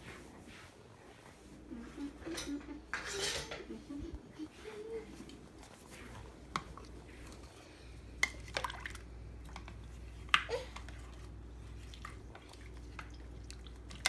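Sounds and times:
spatula stirring soup: 4.4 - 14.0.

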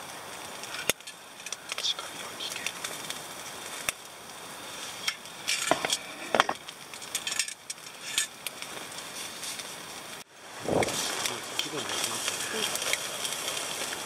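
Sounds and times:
charcoal crackling: 0.0 - 14.0
chicken sizzling on grill: 0.0 - 14.0.

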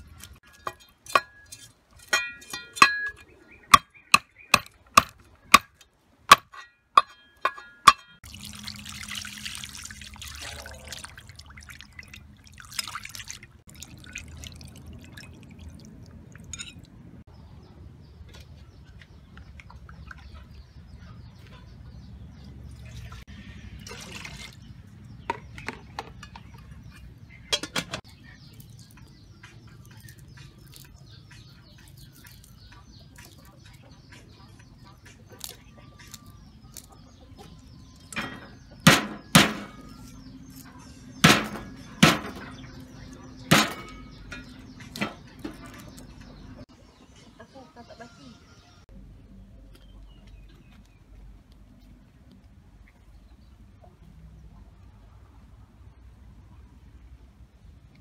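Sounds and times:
water pouring and splashing: 8.2 - 17.2, 22.7 - 25.0, 28.0 - 34.4
handling clicks and knocks: 25.3 - 28.1.

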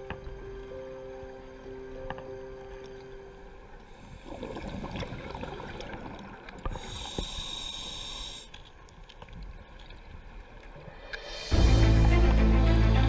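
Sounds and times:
regulator inhale hiss with whistle: 6.8 - 8.6.

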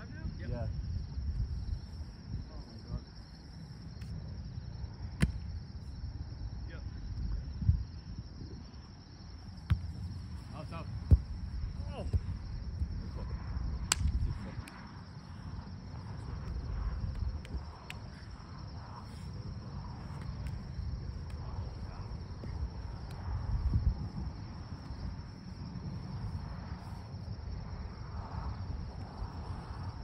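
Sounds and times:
wind rumble on microphone: 0.0 - 30.0
hands slapping volleyball: 13.9 - 14.8.

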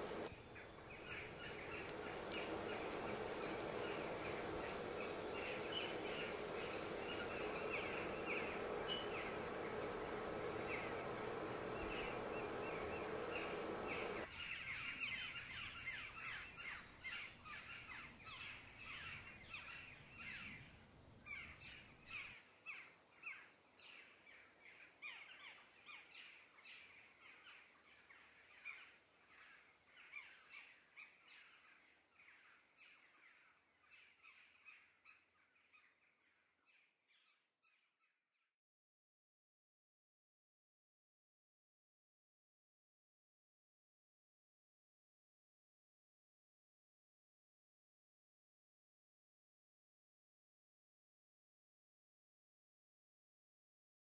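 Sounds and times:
birds chirping: 0.0 - 14.3
steady hiss with hum: 0.0 - 14.3.

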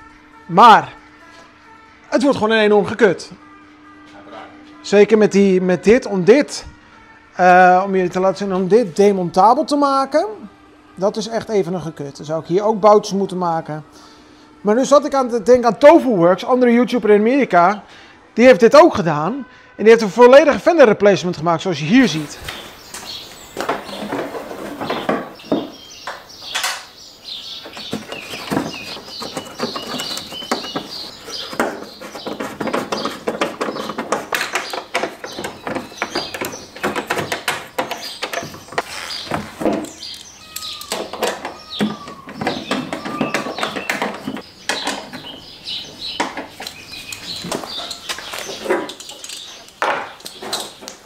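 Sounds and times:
birds chirping: 21.8 - 51.0.

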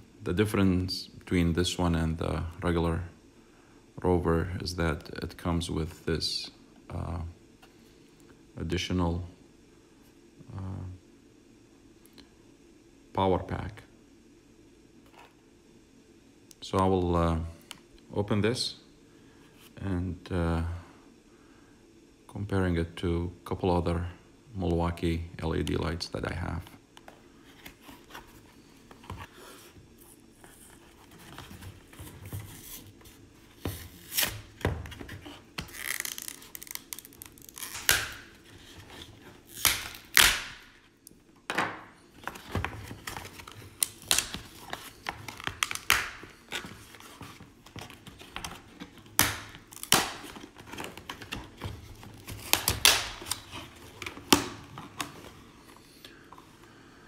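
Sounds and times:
plastic blister pack being torn: 35.6 - 38.4, 39.4 - 40.7, 43.0 - 46.7, 49.0 - 51.4, 52.2 - 54.6.

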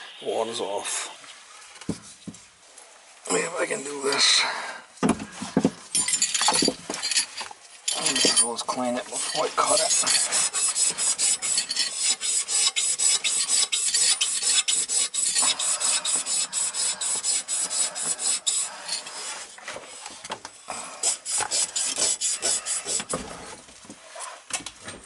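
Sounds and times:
rasping scouring of metal pipe: 6.0 - 20.2, 21.0 - 24.4.

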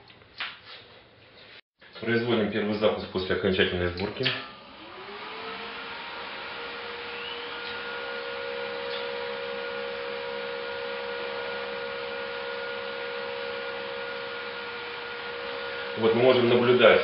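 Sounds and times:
computer fans whirring: 3.8 - 17.0.

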